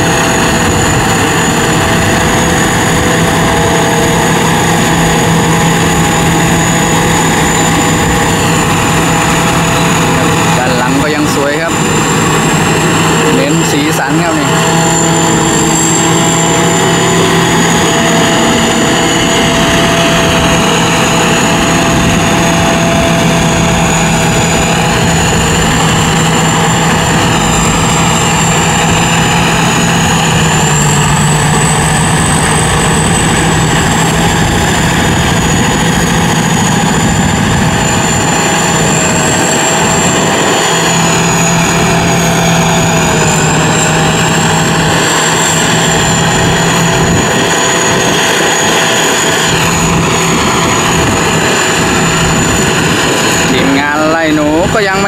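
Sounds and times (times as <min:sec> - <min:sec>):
combine harvester droning: 0:00.0 - 0:55.0.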